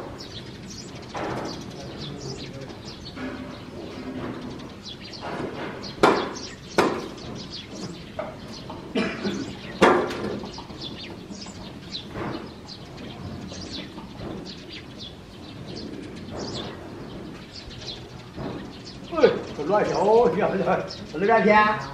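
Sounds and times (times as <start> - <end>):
small birds chirping: 0.0 - 21.9
sharp knocks: 3.1 - 19.6.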